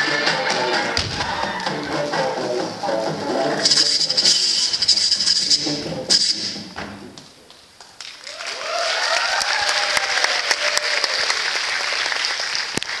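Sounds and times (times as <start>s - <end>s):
whooping cheers: 1.1s - 1.9s, 8.2s - 11.6s
audience applauding: 8.0s - 13.0s.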